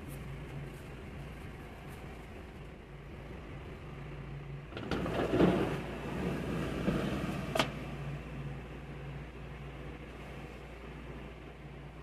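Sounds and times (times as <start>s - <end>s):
low background hum: 0.0s - 12.0s
plastic case scraping on wooden table: 4.8s - 7.4s.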